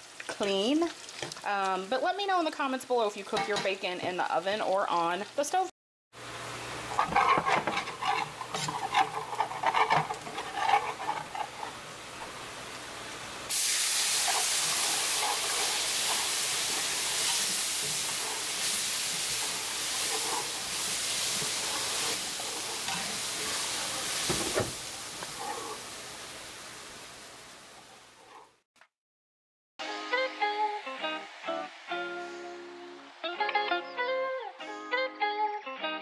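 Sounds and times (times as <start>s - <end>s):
utensil scraping a skillet: 6.9s - 12.4s, 13.5s - 26.0s, 27.8s - 28.6s
loud sizzling hiss: 11.7s - 27.8s.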